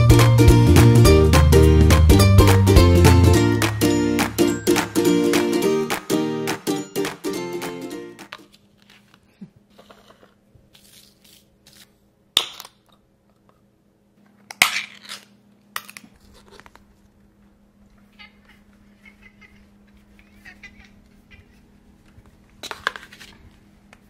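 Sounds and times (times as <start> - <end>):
rustling and crinkling: 8.2 - 12.0, 19.9 - 24.0.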